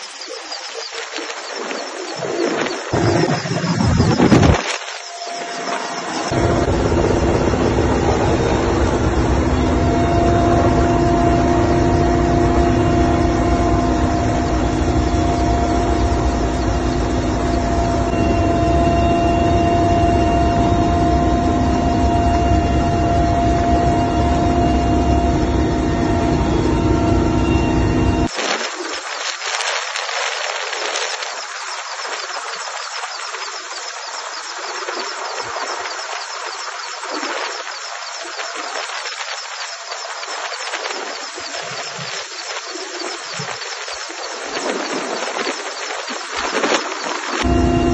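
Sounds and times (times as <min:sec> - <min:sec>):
helicopter engine and rotor rumble: 0:05.2 - 0:28.3, 0:47.4 - 0:47.9.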